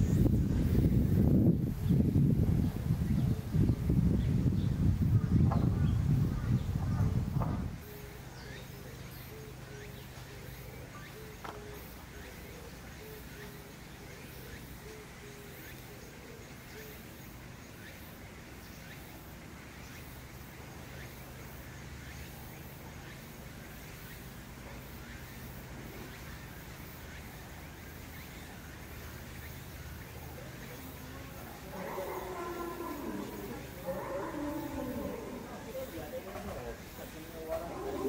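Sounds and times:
faint chirps: 0:07.8 - 0:38.0.

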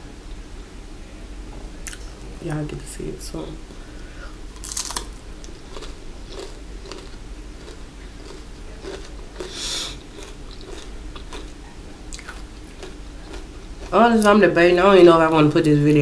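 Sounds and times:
person chewing food: 0:04.4 - 0:14.4.

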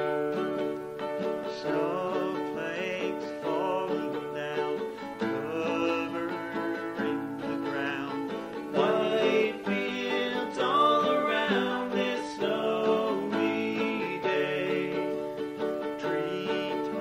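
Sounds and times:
lead guitar melody: 0:00.0 - 0:17.0
rhythm guitar: 0:00.0 - 0:17.0
ukulele: 0:00.0 - 0:17.0.

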